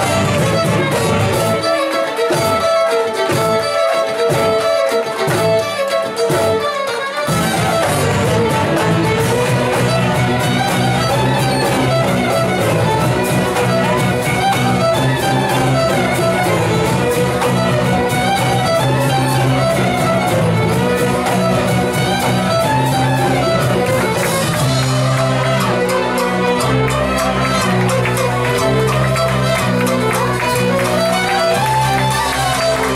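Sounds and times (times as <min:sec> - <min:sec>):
held bass line: 0:00.0 - 0:01.7, 0:07.3 - 0:32.9
fiddles playing a folk tune: 0:00.0 - 0:32.9
steady percussive beat: 0:00.0 - 0:32.9.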